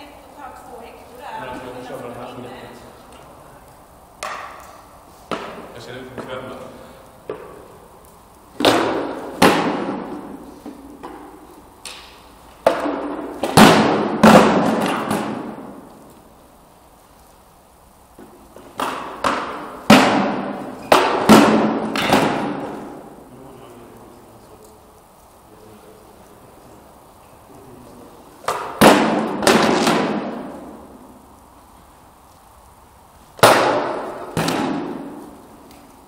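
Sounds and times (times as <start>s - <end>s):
weapons knocking on wooden shields: 18.2s - 22.8s.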